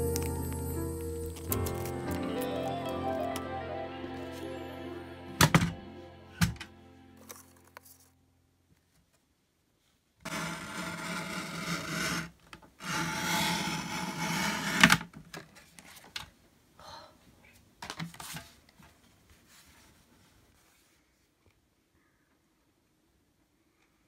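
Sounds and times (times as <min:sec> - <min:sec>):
paper trimmer cutting: 0:10.3 - 0:12.2
paper trimmer blade scraping: 0:10.3 - 0:14.9.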